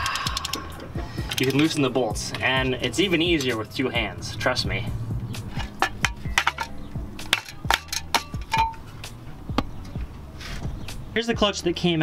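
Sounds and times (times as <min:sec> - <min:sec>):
metallic ratchet clicks: 0:00.0 - 0:02.4
background music: 0:00.0 - 0:12.0.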